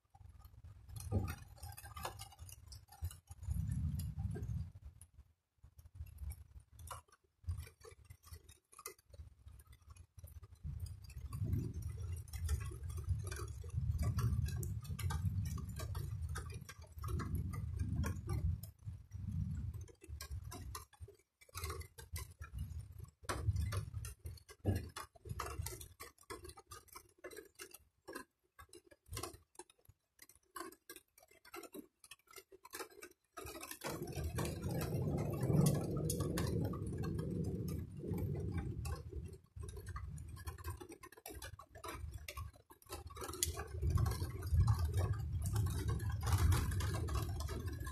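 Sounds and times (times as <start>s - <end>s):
raindrops on hard surface: 0.1s - 47.9s
distant thunder rumbling: 33.9s - 39.1s.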